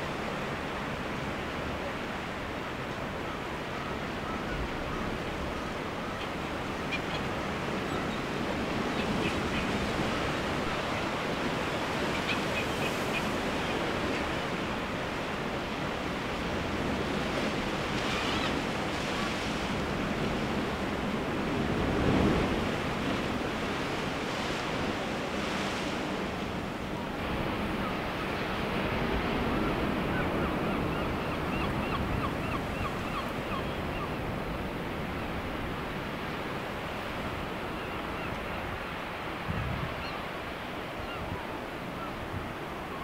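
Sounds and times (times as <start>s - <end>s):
sea surf: 0.0s - 43.0s
wind: 0.0s - 43.0s
distant seabird calls: 3.3s - 14.6s, 27.4s - 34.3s, 37.0s - 43.0s.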